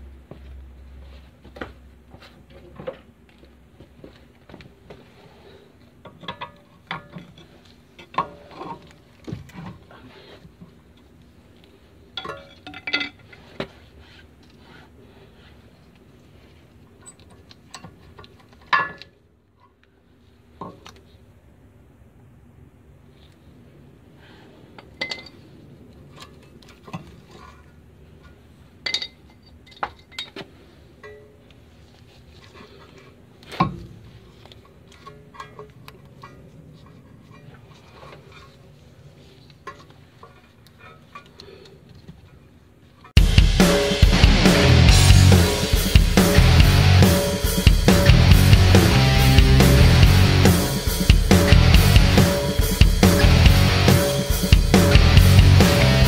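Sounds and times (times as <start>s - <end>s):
faint metallic clinks and scrapes: 24.8s - 43.2s.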